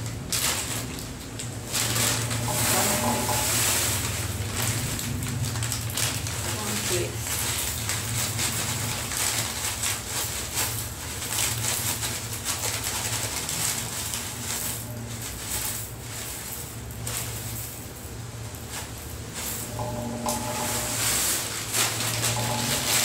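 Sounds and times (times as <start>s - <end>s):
flakes crackling onto plate: 0.0s - 23.0s
plastic bag crinkling: 0.0s - 23.0s
steady low hum: 13.8s - 23.0s.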